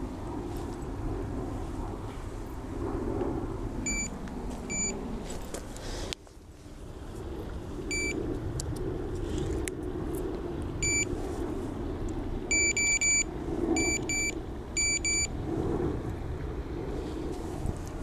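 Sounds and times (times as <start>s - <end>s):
steady low rumble: 0.0s - 18.0s
bite alarm beeping: 3.8s - 4.1s, 4.7s - 4.9s, 7.9s - 8.2s, 10.8s - 11.1s, 12.5s - 15.3s.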